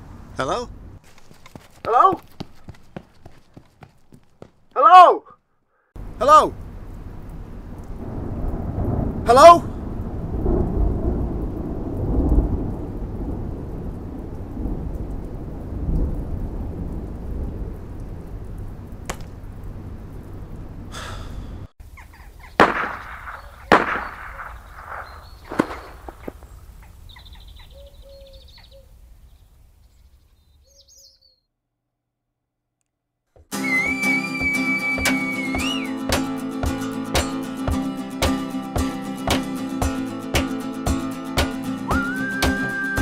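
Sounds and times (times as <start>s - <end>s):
deep rumbling ambience: 6.0s - 21.7s
sharp knocks: 19.1s - 19.4s.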